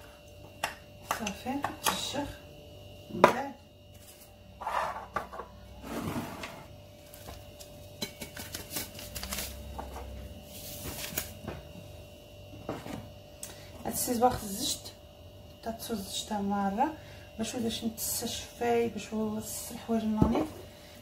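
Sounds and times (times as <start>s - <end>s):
faint steady hum: 0.0s - 21.0s
paper sachets rustling: 8.4s - 9.7s.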